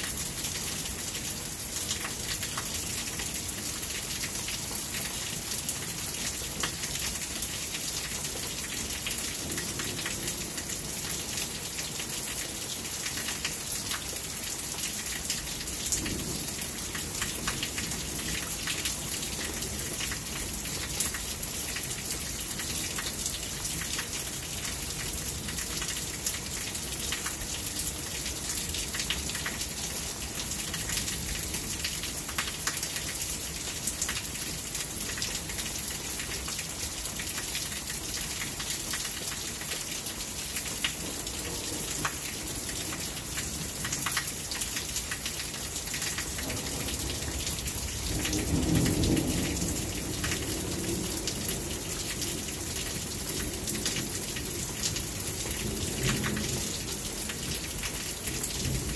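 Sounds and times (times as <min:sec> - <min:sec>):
raindrops ticking close by: 0:00.0 - 0:58.9
steady rain falling: 0:00.0 - 0:58.9
low roll of thunder: 0:46.4 - 0:51.9.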